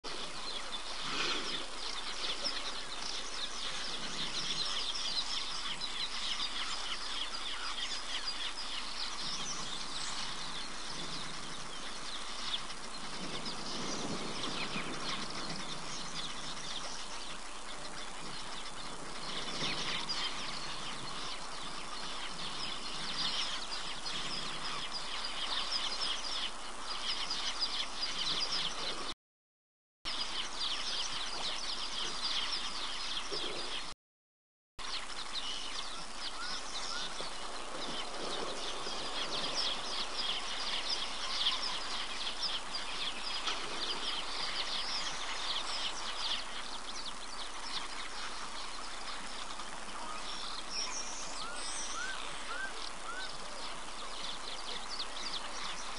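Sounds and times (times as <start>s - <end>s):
many birds chirping and calling: 0.1s - 29.1s, 30.1s - 33.9s, 34.8s - 55.9s.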